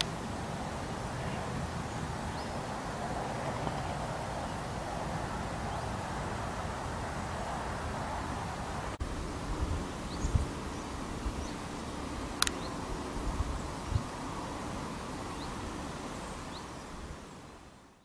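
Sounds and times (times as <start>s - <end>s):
sharp click: 12.4s - 12.6s.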